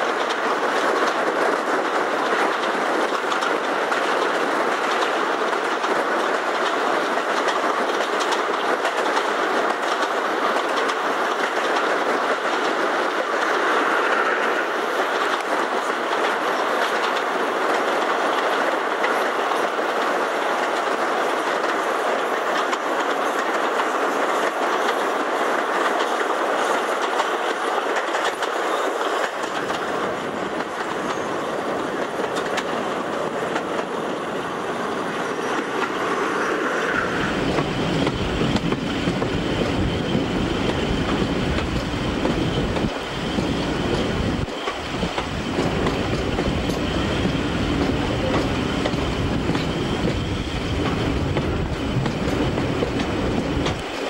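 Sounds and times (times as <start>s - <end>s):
train wheels on rails: 0.0s - 54.0s
wind rushing: 29.5s - 54.0s.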